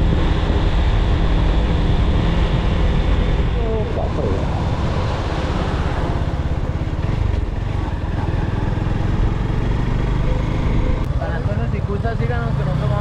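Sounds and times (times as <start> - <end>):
wind noise on microphone: 0.0 - 9.3
motorcycle engine running: 0.0 - 13.0.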